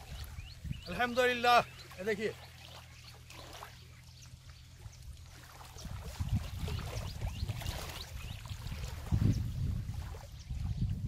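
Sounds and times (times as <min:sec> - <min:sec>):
wind buffeting microphone: 0:00.0 - 0:01.5, 0:04.8 - 0:11.0.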